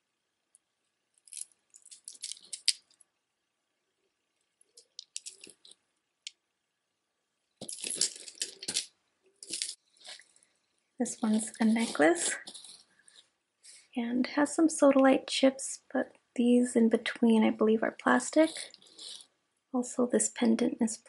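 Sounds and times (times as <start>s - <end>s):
necklace beads and chain rattling: 1.2s - 3.0s, 4.7s - 5.8s, 7.6s - 10.4s, 11.0s - 13.2s, 18.3s - 19.3s.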